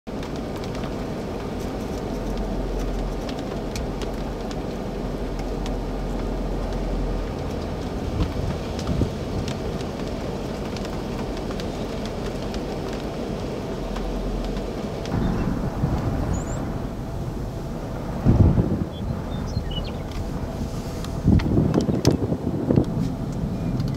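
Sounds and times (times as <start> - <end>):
raindrops ticking on windshield: 0.1 - 23.9
steady low rumble: 0.1 - 23.9
loud thumps: 15.1 - 18.8.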